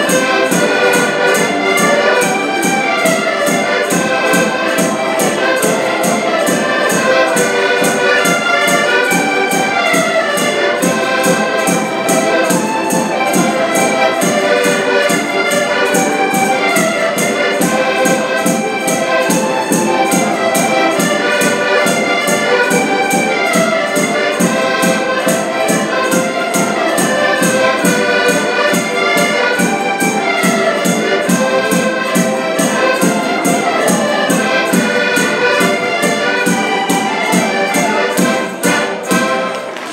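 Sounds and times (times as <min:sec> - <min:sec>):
button accordions playing folk tune: 0:00.0 - 0:39.9.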